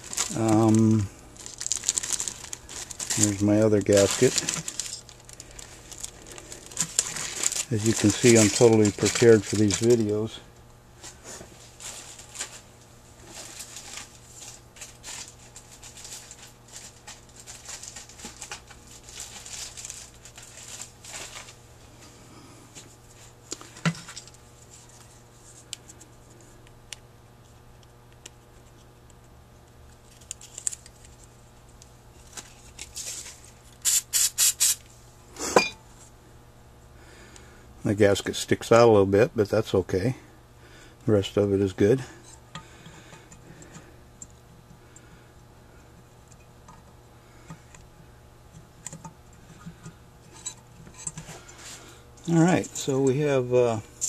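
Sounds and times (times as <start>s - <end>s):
paper and plastic rustling: 0.0s - 10.4s, 11.0s - 21.6s, 30.0s - 31.4s, 32.2s - 33.7s.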